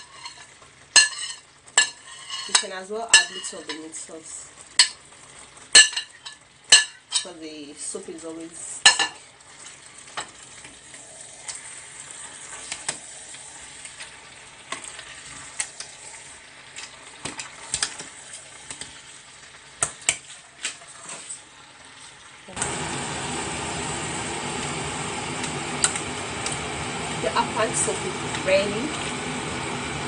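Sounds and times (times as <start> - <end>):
metal spoon scraping a pot: 0.0 - 3.9
soup cooking: 0.0 - 30.0.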